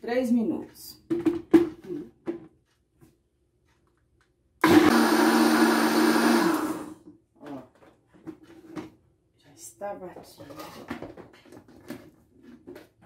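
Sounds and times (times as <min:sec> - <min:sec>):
blender running: 0:04.6 - 0:07.0.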